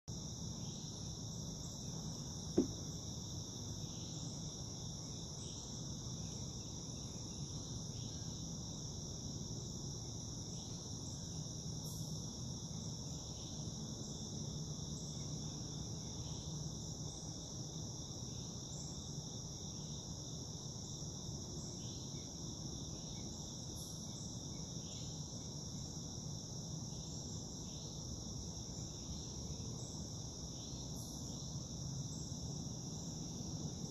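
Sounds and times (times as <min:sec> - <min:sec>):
insect chorus trilling: 0:00.1 - 0:33.9.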